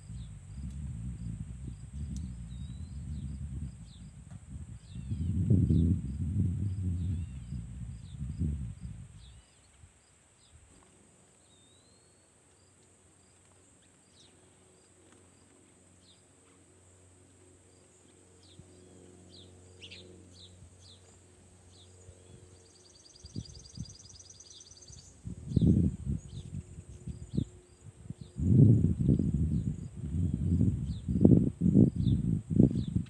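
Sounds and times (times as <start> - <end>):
loud low rumbles: 0.0 - 9.3
sparrows chirping: 1.2 - 4.2, 4.8 - 5.9, 17.8 - 33.0.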